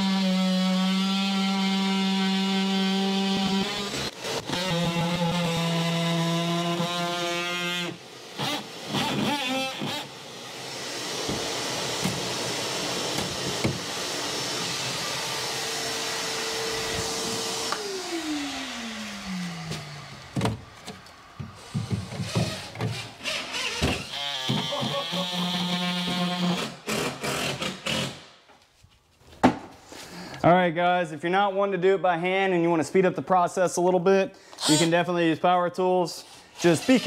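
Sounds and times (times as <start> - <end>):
rotary tool cutting drywall: 0.0 - 20.5, 21.6 - 28.3, 34.6 - 35.0, 36.2 - 37.0
knocks and rattles of drywall: 19.7 - 23.0.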